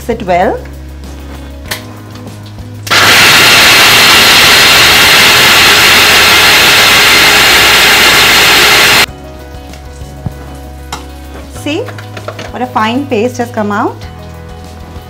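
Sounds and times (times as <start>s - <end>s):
mixer grinder running: 2.9s - 9.1s.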